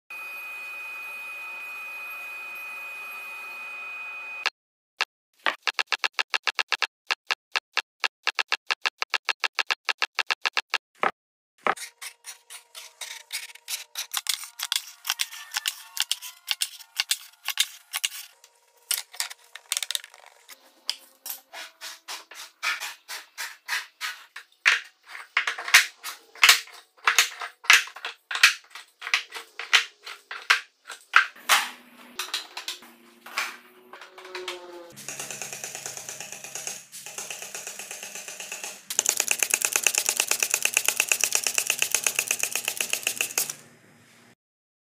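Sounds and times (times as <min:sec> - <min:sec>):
wooden blocks clicking and clacking: 0:18.9 - 0:20.6, 0:22.6 - 0:31.6, 0:32.2 - 0:43.6.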